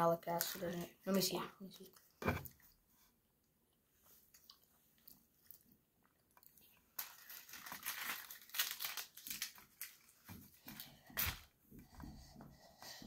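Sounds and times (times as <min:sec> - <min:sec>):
plastic crinkling and crackling: 0:00.3 - 0:02.2, 0:04.3 - 0:11.5.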